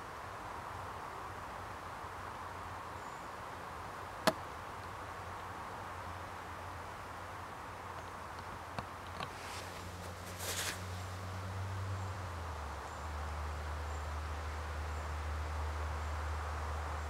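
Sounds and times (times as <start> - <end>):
brief rustle: 9.1 - 11.2.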